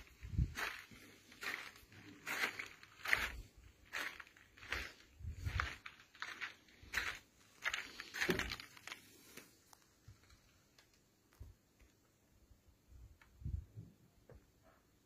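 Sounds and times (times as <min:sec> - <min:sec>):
footsteps on gravel: 0:00.0 - 0:09.6.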